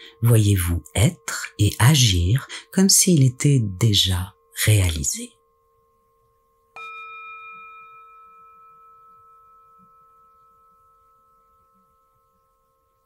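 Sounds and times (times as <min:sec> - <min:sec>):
singing bowl ringing: 0:05.4 - 0:13.0.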